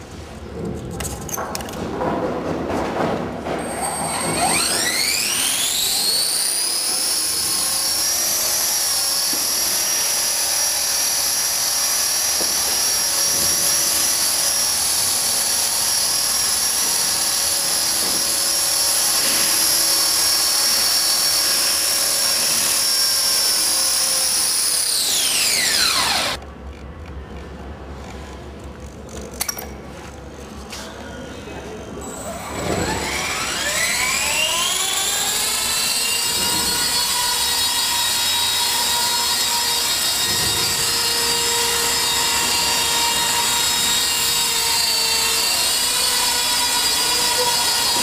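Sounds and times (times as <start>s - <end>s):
rc helicopter motor whine: 4.1s - 26.4s, 32.4s - 48.0s.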